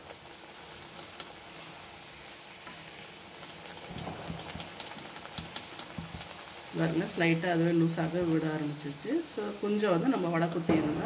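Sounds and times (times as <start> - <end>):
batter sizzling in hot oil: 0.0 - 11.0
light knocks and crackles: 3.8 - 6.5.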